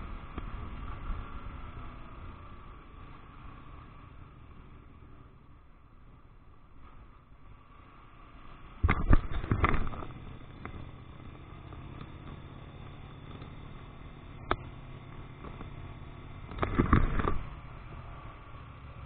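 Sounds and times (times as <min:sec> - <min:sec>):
motorcycle engine hum: 0:00.0 - 0:19.0.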